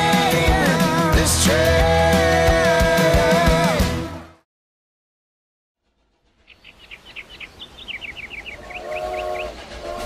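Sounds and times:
bird chirping: 6.4s - 9.6s
steam locomotive whistle: 8.4s - 10.0s.

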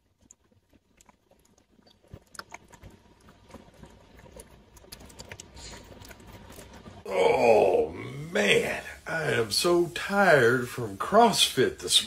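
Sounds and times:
cat licking and smacking: 0.0s - 7.0s.

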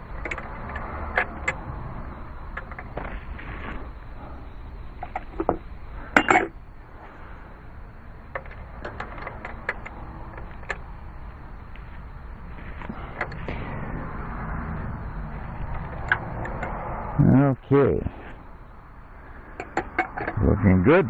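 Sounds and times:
metallic clinks of tool and fitting: 6.2s - 6.5s.

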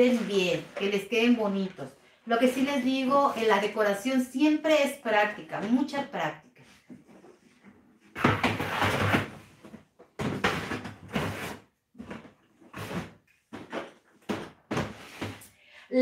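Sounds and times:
containers scraping on shelf: 10.3s - 11.6s.

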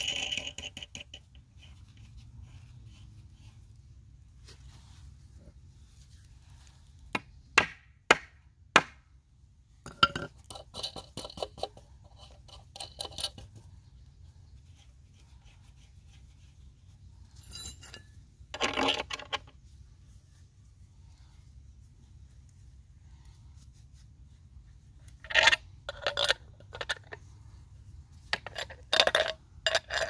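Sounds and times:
metal hand tools clinking: 9.9s - 13.5s, 17.4s - 19.3s.

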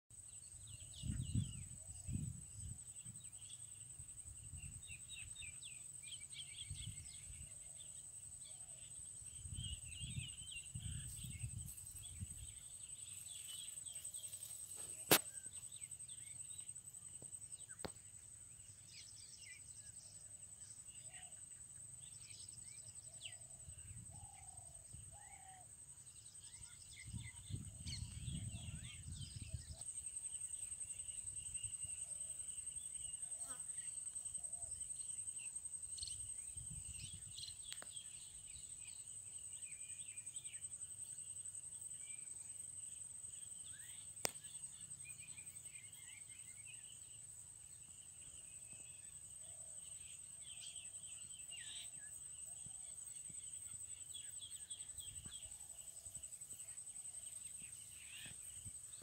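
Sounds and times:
sharp click: 15.1s - 15.4s
small birds chirping: 24.2s - 42.3s.

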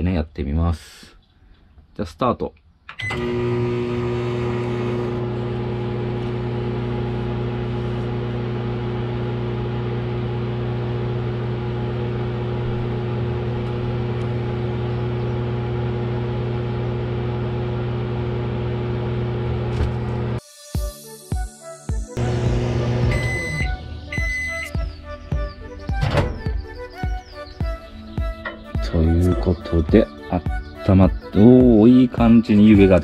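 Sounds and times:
microwave beep: 2.9s - 7.0s, 22.2s - 25.0s
microwave oven humming: 3.0s - 20.4s, 22.2s - 25.0s.

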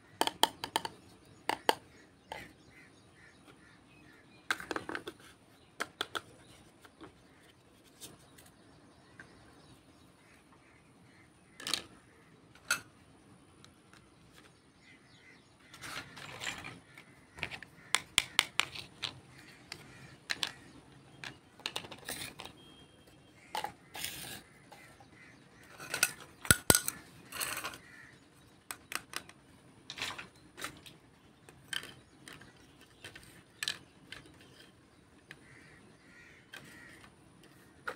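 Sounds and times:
plastic toy pieces clicking: 17.4s - 22.6s, 25.8s - 27.8s, 28.7s - 29.4s, 31.5s - 34.7s.

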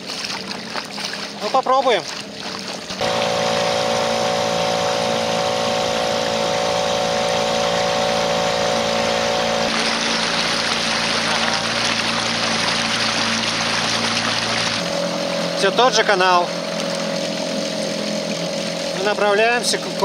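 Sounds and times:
outboard motor running: 0.0s - 20.0s
wind: 0.0s - 20.0s
water hiss: 3.0s - 14.8s
high-pitched whine: 3.0s - 16.5s.

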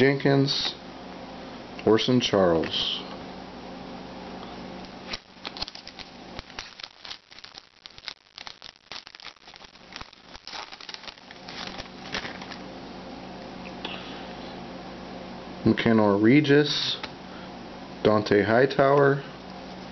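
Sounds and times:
foil wrapper crinkling: 5.0s - 12.6s.

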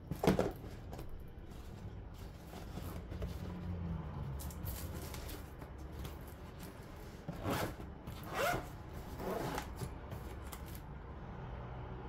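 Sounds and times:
zipper rasping shut: 7.3s - 9.9s.

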